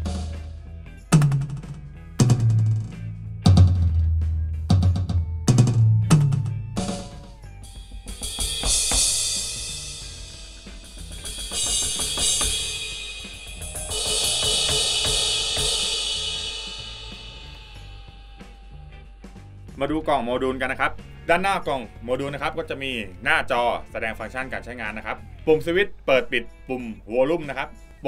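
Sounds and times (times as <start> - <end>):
cymbal crashes: 0.0 - 3.0, 6.1 - 19.8
heavy low drum hits: 0.0 - 20.0.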